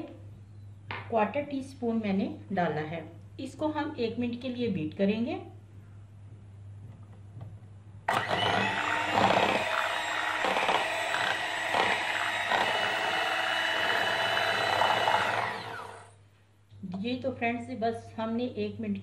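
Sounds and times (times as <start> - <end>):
electric hand mixer running: 8.1 - 16.2.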